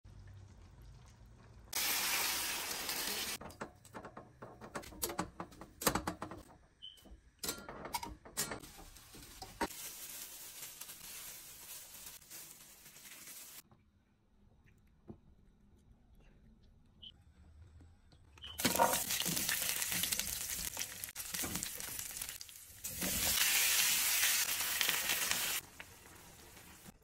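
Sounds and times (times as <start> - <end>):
utensils and cookware knocking: 7.4 - 9.7
plastic bag crinkling: 8.7 - 13.6.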